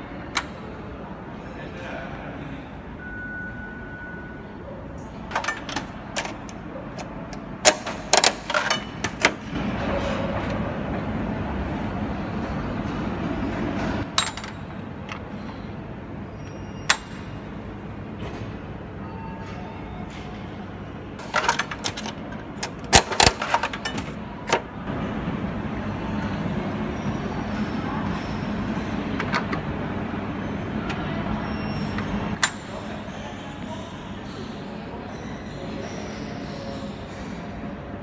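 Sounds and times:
coin crank clicks and clanks: 0:05.3 - 0:06.6, 0:07.6 - 0:09.4, 0:21.2 - 0:24.6.

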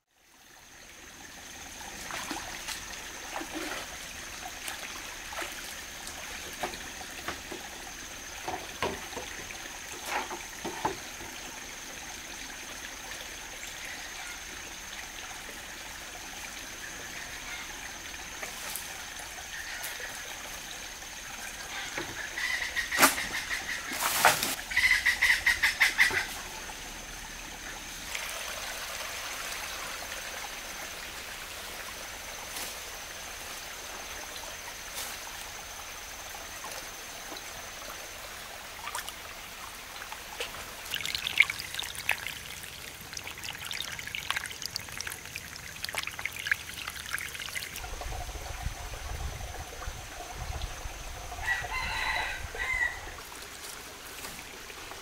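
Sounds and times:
stream over stones: 0:00.0 - 0:55.0.

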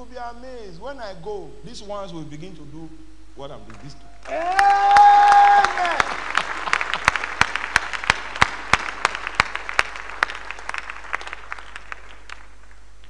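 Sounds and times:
crowd applauding: 0:04.2 - 0:12.9.

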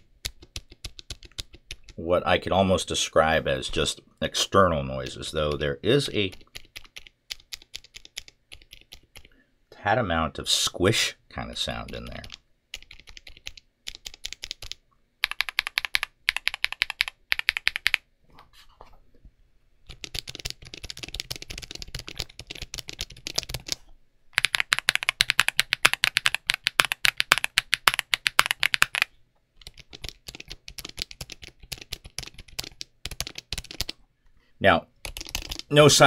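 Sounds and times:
rapid mechanical keyboard typing: 0:00.0 - 0:02.0, 0:05.4 - 0:09.3, 0:11.7 - 0:18.0, 0:19.9 - 0:23.8, 0:24.4 - 0:34.0, 0:35.0 - 0:35.9.

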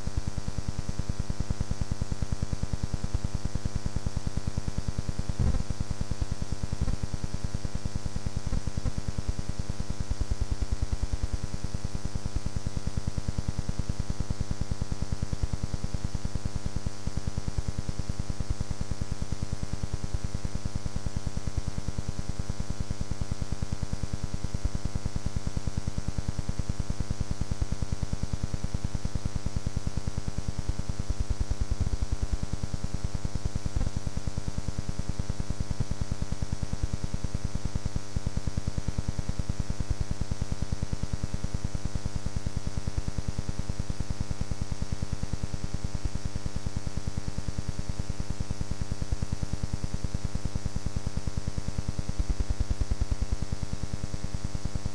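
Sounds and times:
electrical buzz and hum: 0:00.0 - 0:13.3, 0:29.2 - 0:35.4, 0:51.8 - 0:54.9.

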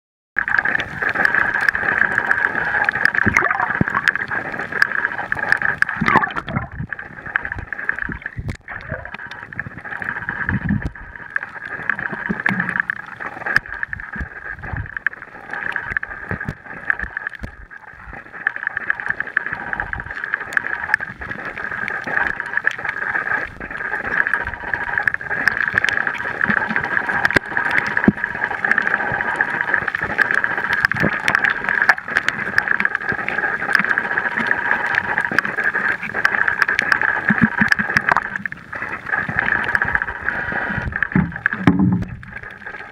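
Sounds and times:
small clicks and crackles: 0:00.4 - 0:42.9.

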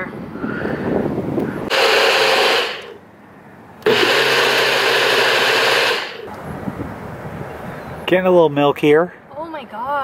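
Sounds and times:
blender running: 0:01.7 - 0:03.0, 0:03.8 - 0:06.3.

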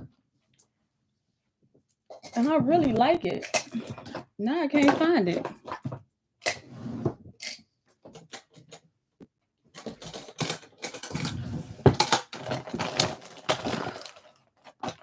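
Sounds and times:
makeup containers clattering: 0:02.1 - 0:06.0, 0:09.8 - 0:13.6.

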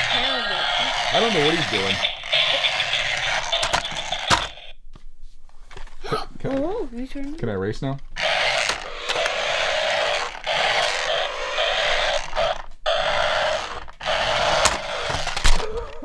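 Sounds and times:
toy car motor buzzing: 0:00.0 - 0:04.7, 0:08.2 - 0:16.0.

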